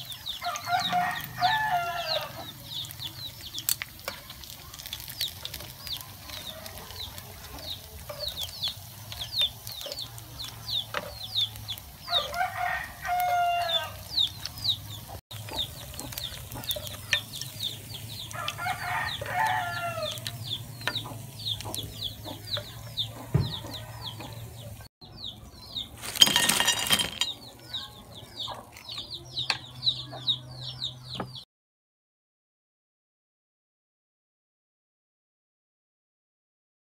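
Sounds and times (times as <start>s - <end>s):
chicks peeping: 0.0s - 26.5s, 27.3s - 31.4s
rooster crowing: 0.4s - 2.6s, 12.1s - 14.1s, 18.3s - 20.3s.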